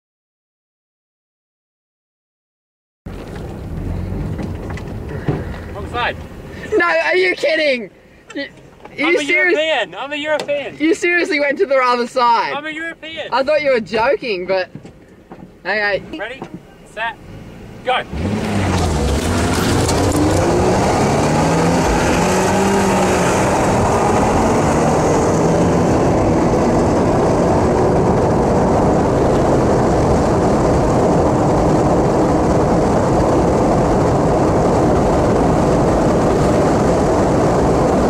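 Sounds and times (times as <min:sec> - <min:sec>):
car engine accelerating: 0:03.1 - 0:07.6, 0:15.7 - 0:38.0
wind and road noise: 0:03.1 - 0:38.0.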